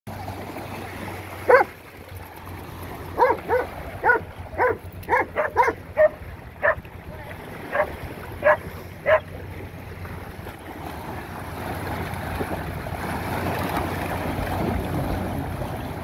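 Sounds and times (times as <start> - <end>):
dogs splashing through water: 0.1 - 16.0
waves lapping at shore: 0.1 - 16.0
dog barking: 1.5 - 1.7, 3.2 - 6.8, 7.7 - 9.2.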